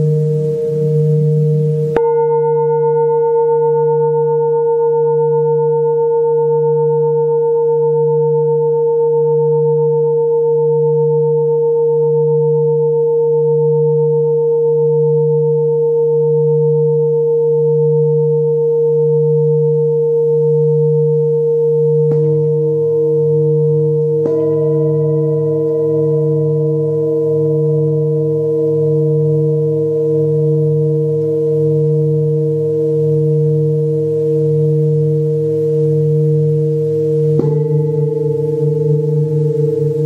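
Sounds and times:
mallet striking bowl: 0:00.0 - 0:04.6, 0:22.0 - 0:29.4, 0:36.3 - 0:40.0
singing bowls ringing: 0:00.0 - 0:40.0.

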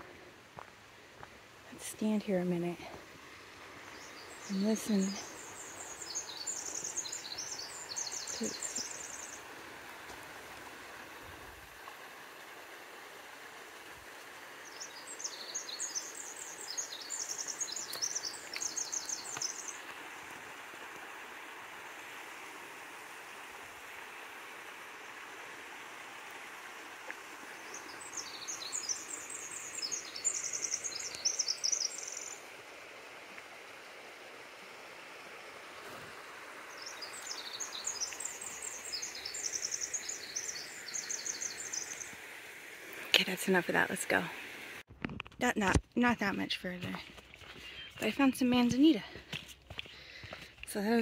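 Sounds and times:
background hiss: 0:00.0 - 0:44.9
songbird trilling: 0:03.9 - 0:09.4, 0:14.7 - 0:19.8, 0:27.7 - 0:32.4, 0:36.8 - 0:42.1, 0:47.4 - 0:49.0.

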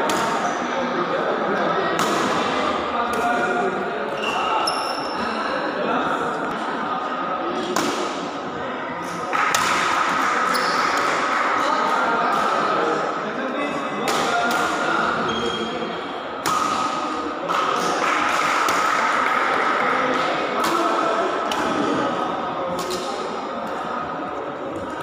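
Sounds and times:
background chatter: 0:00.0 - 0:25.0
rackets hitting shuttlecock: 0:07.7 - 0:08.3, 0:09.3 - 0:12.7, 0:14.0 - 0:15.3, 0:16.4 - 0:22.0, 0:22.7 - 0:23.8.

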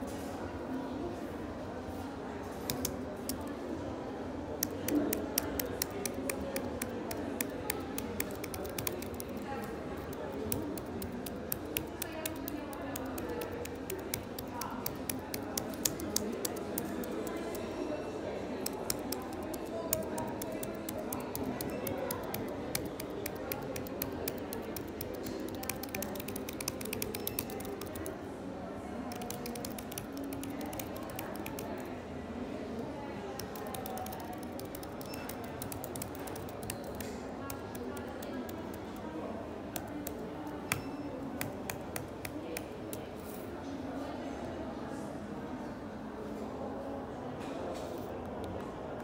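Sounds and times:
keyboard keys clicking: 0:02.6 - 0:03.5, 0:04.6 - 0:17.7, 0:18.5 - 0:28.1, 0:29.1 - 0:31.9, 0:33.4 - 0:39.1, 0:39.7 - 0:43.1.

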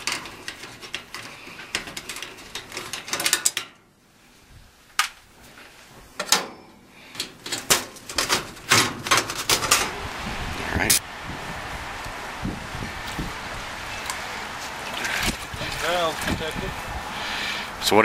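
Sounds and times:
handling clicks and knocks on metal: 0:00.0 - 0:03.8, 0:06.2 - 0:09.9.

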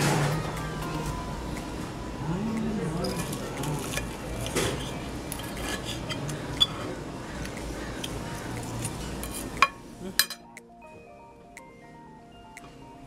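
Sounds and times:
music: 0:00.0 - 0:13.0
knife and fork scraping a plate: 0:03.1 - 0:06.8, 0:09.1 - 0:09.6.

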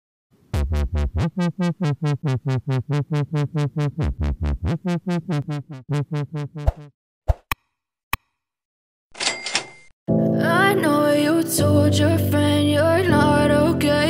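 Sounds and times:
synthesizer repeated notes: 0:00.5 - 0:06.9
deep bass: 0:00.6 - 0:06.9.

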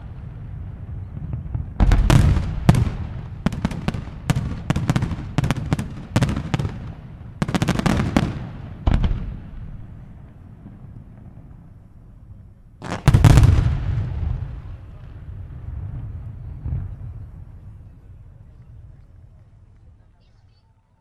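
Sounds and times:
echoing rumble: 0:00.0 - 0:20.0.

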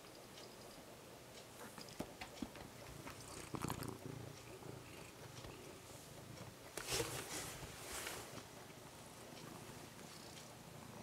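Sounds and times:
cat purring: 0:01.6 - 0:11.0
rustling against microphone: 0:06.7 - 0:08.5.

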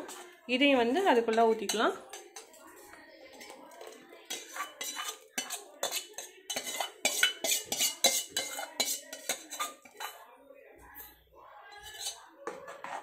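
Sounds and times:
steel spoon scraping mixer jar: 0:00.0 - 0:00.4, 0:03.3 - 0:10.2, 0:11.7 - 0:13.0.

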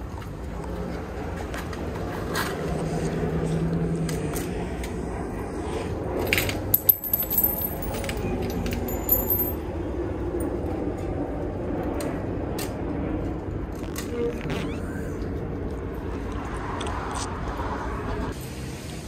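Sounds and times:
coin mechanism clicks and clinks: 0:06.3 - 0:09.6.

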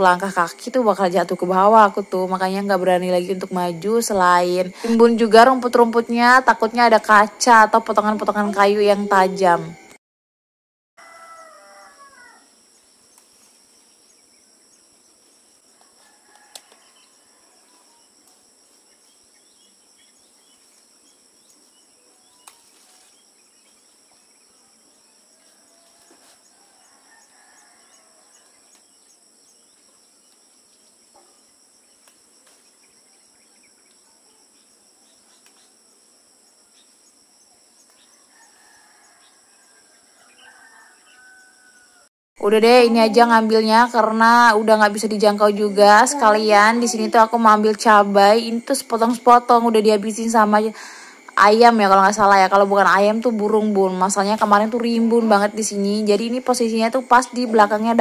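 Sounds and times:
rooster crowing faintly: 0:11.0 - 0:12.5, 0:15.7 - 0:18.0, 0:25.3 - 0:28.8, 0:38.0 - 0:42.1
leaves snapping: 0:22.4 - 0:23.2, 0:32.0 - 0:32.7.

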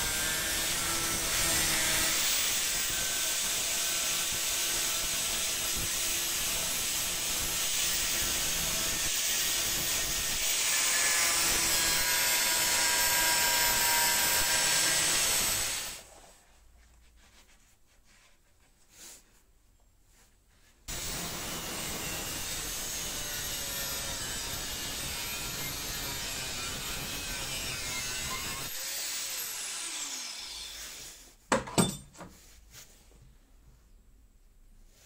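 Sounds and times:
angle grinder cutting metal: 0:00.0 - 0:16.0, 0:20.9 - 0:31.0.

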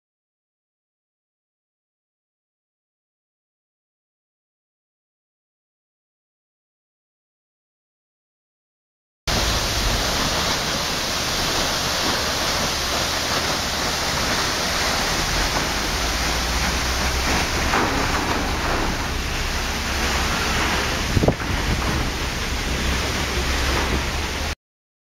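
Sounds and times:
waterfall rushing: 0:09.3 - 0:24.6.

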